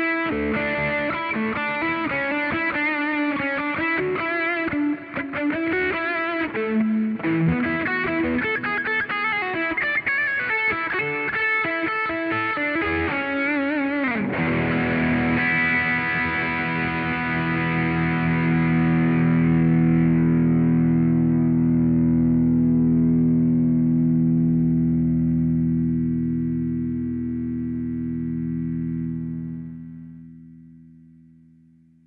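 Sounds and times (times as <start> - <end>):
ringing guitar chord: 0.0 - 31.8
electric guitar lead line: 0.0 - 32.0.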